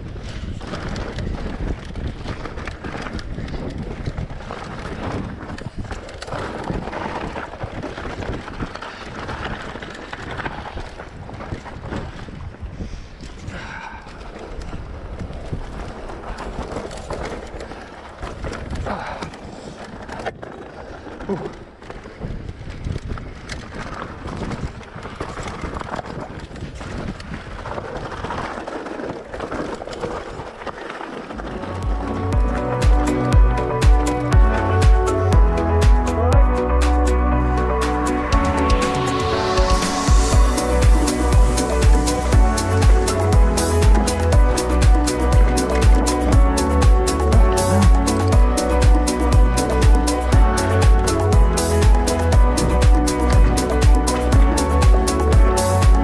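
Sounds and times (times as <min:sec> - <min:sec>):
tyres crunching over stones: 0:00.0 - 0:12.7, 0:13.3 - 0:35.2
wind rumble on microphone: 0:00.0 - 0:35.8, 0:37.7 - 0:56.0
bike rattling: 0:00.0 - 0:36.2, 0:37.7 - 0:56.0
music: 0:31.5 - 0:56.0.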